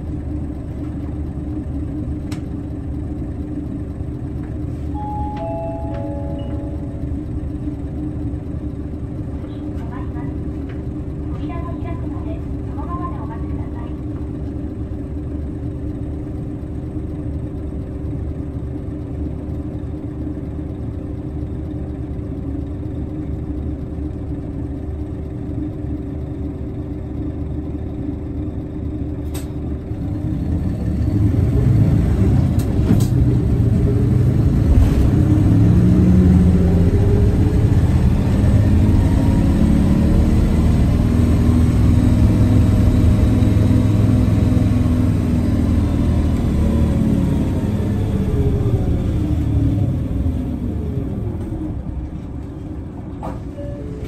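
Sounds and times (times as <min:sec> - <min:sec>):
bus engine accelerating: 0:00.0 - 0:54.0
diesel bus engine idling: 0:00.0 - 0:54.0
click: 0:02.3 - 0:02.5, 0:29.2 - 0:29.6.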